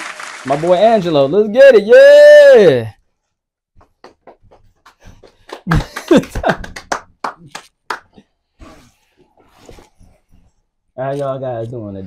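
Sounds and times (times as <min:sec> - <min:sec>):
person exclaiming: 0:01.6 - 0:02.9
taps and slaps from people moving: 0:03.8 - 0:08.2.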